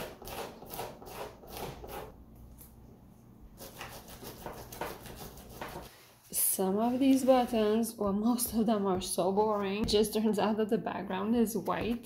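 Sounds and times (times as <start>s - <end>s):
fingers scuffing canvas: 3.8s - 10.1s.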